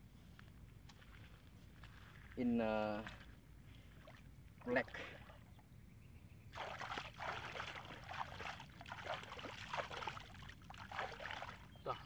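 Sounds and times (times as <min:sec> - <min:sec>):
hands splashing in muddy water: 0:06.5 - 0:11.7.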